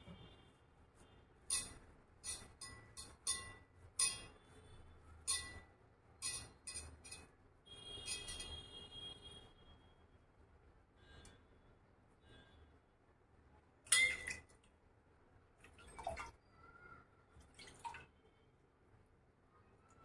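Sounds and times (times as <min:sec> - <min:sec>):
kitchen utensils clinking: 0:01.5 - 0:04.4, 0:05.2 - 0:05.6, 0:06.2 - 0:07.3, 0:08.0 - 0:08.6, 0:13.9 - 0:14.5
ringing utensil scrape: 0:01.5 - 0:04.5, 0:05.2 - 0:07.3, 0:08.0 - 0:08.7.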